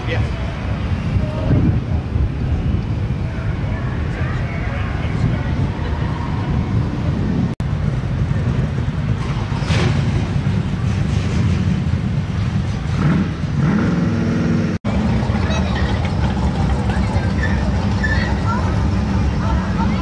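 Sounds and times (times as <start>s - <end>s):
car engine running and revving: 7.3s - 20.0s.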